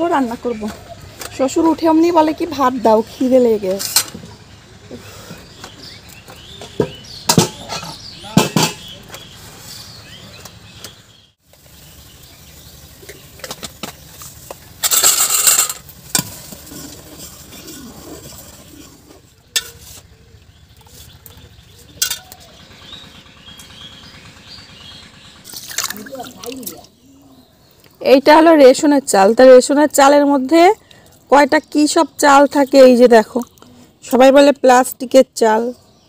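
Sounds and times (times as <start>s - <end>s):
metal dishes clanking: 6.8s - 9.0s, 14.8s - 15.8s, 22.0s - 22.4s.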